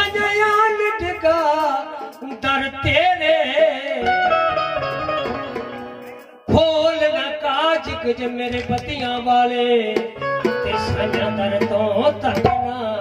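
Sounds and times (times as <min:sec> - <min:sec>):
man singing into a microphone: 0:00.0 - 0:05.4, 0:06.1 - 0:13.0
plucked one-string lute: 0:04.0 - 0:06.4.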